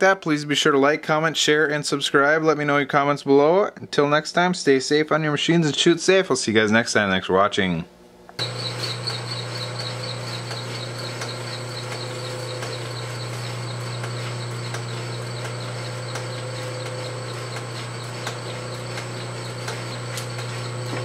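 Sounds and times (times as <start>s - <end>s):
metal lathe motor hum: 8.4s - 21.0s.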